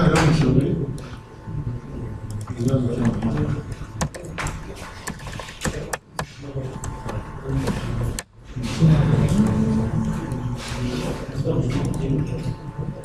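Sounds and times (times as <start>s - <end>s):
low voices talking: 0.0s - 13.0s
keyboard and mouse clicks: 2.3s - 8.3s, 11.7s - 12.3s.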